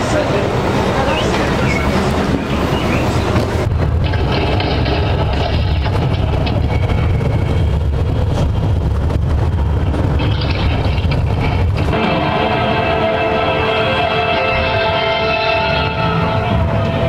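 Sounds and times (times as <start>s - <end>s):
bus engine and road rumble: 0.0s - 17.0s
music: 11.9s - 17.0s.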